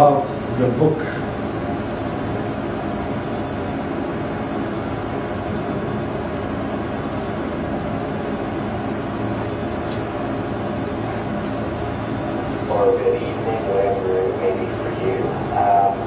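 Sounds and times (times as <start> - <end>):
low hum: 10.2 - 16.0.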